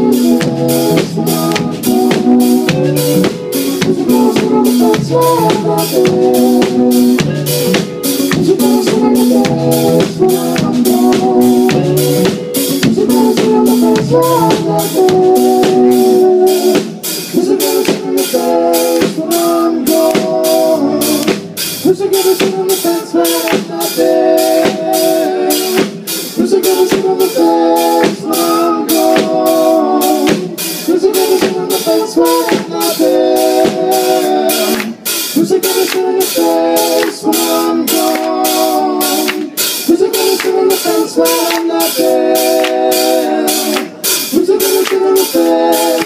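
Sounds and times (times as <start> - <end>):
electric guitar riff: 0.0 - 17.3
drum kit beat: 0.0 - 46.0.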